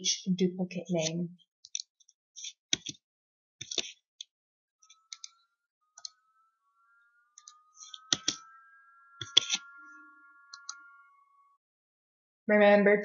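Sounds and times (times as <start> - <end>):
mouse and keyboard clicks: 1.7 - 3.0, 3.6 - 4.0.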